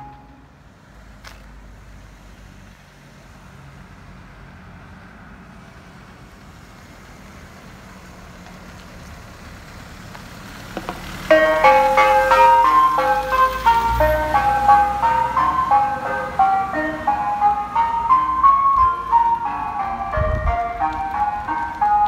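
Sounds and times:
ice cream van chime tune: 0.0 - 0.5, 11.3 - 22.0
van engine rumbling: 0.0 - 22.0.

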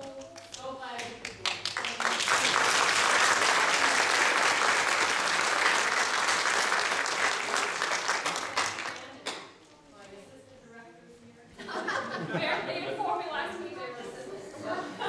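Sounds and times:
audience applauding: 1.2 - 9.1.

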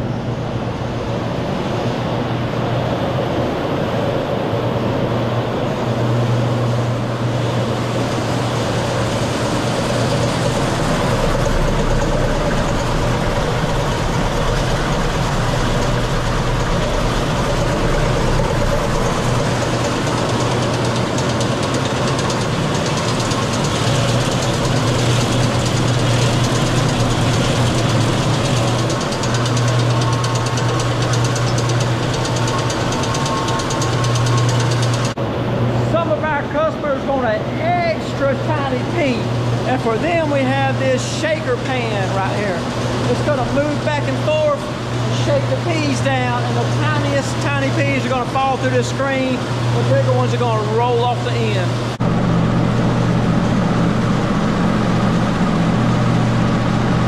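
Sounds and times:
low motor hum: 0.0 - 57.0
pea pods rattling in drum: 9.9 - 35.2.

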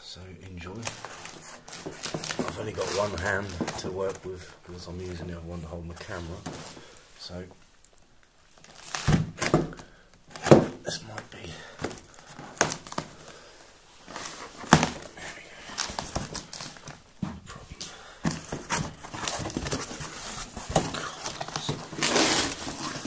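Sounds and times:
cardboard rustling: 0.7 - 7.0, 8.6 - 23.0
plastic crinkling: 0.7 - 23.0
packing tape tearing: 0.8 - 3.9, 8.5 - 9.7, 12.2 - 13.3, 18.3 - 23.0.

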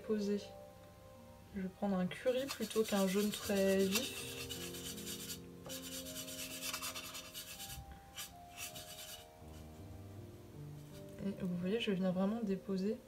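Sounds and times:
paintbrush scrubbing in paint tin: 2.3 - 9.7.

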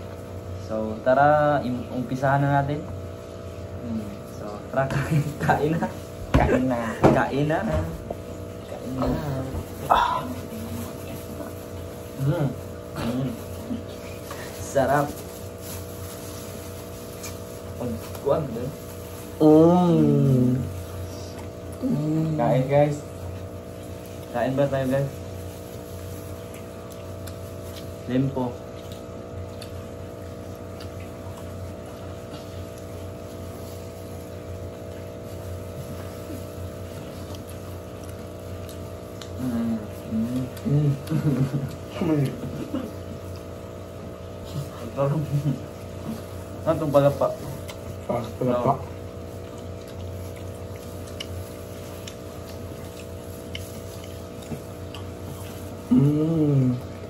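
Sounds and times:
mechanical hum with low drone: 0.0 - 57.0
clicks and rustles of eating: 4.1 - 19.4, 23.0 - 55.9
person vocal sound: 8.8 - 11.2, 12.2 - 14.2, 19.4 - 22.7, 55.8 - 56.9.

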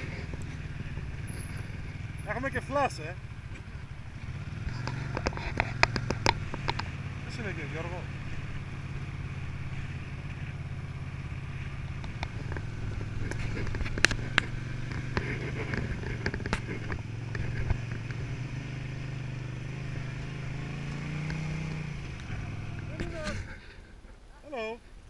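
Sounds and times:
motorcycle engine running: 0.0 - 23.8
sharp knocks and clicks: 4.6 - 7.0, 12.0 - 18.2.

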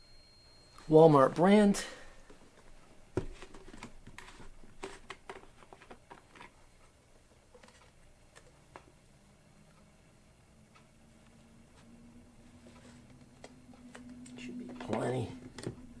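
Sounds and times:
plastic bottle clicks and rustles: 3.2 - 6.6.

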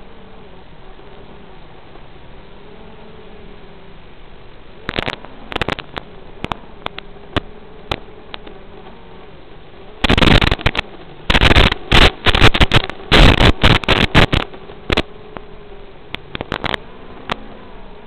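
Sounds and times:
crackling radio static: 0.0 - 18.0
faint steady tone: 0.0 - 18.0
sharp clicks: 10.0 - 15.5, 16.1 - 17.4.

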